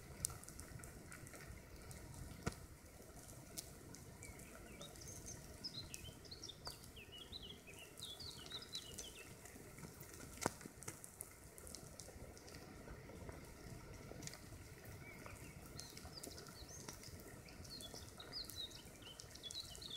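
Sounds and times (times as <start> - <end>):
ants crawling crackling sizzle: 0.0 - 19.9
small bird chirping: 4.2 - 9.3.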